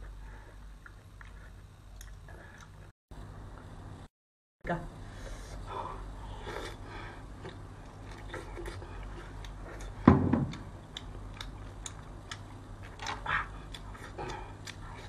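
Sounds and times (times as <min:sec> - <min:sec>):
loud thump: 0:10.1 - 0:10.5.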